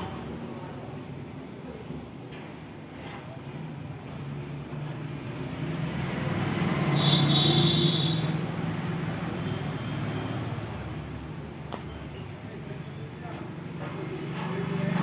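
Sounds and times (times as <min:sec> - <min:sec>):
vehicle passing by: 0:04.1 - 0:11.4, 0:13.9 - 0:15.0.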